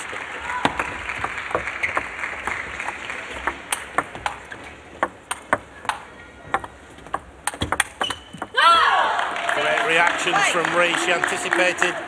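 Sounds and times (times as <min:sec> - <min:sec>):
table tennis ball clicking: 0:00.6 - 0:08.6.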